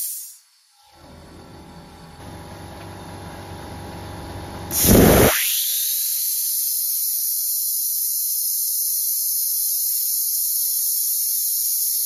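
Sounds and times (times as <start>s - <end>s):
compressed air hissing: 0.0s - 0.4s, 4.7s - 7.7s.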